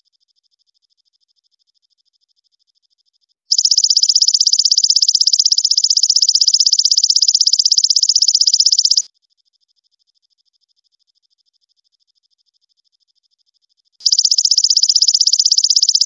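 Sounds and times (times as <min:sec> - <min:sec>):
katydid pulsed trill: 0:03.5 - 0:09.1, 0:14.0 - 0:16.0.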